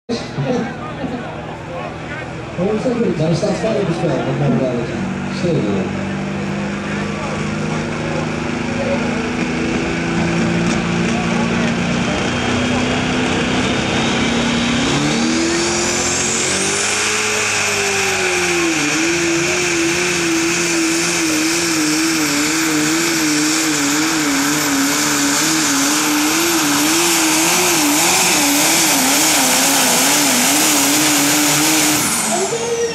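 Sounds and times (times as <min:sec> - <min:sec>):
tractor engine at full throttle: 0:00.1 - 0:32.9.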